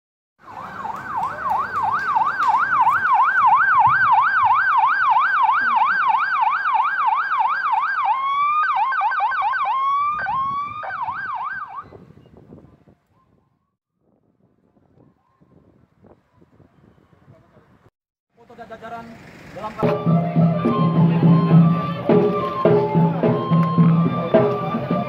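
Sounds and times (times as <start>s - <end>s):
police siren yelping: 0.4s - 12.0s, 19.8s - 25.0s.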